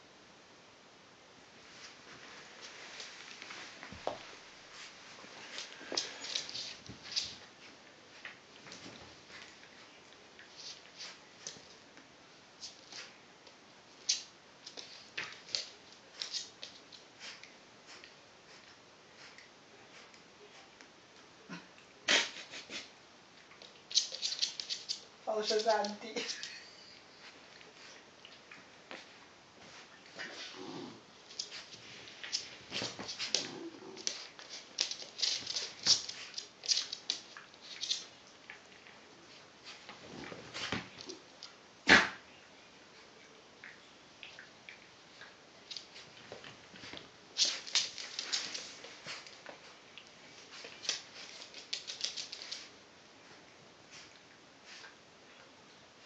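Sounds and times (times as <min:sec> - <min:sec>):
dog claws clicking on floor: 0:05.5 - 0:07.5, 0:23.6 - 0:26.6, 0:31.3 - 0:38.2, 0:45.6 - 0:52.7.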